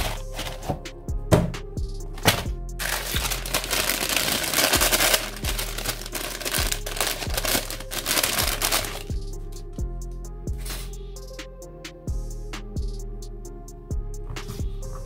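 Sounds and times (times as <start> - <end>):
paper crinkling and rustling: 0.0 - 0.8, 2.2 - 9.1
background music with steady beat: 0.0 - 15.0.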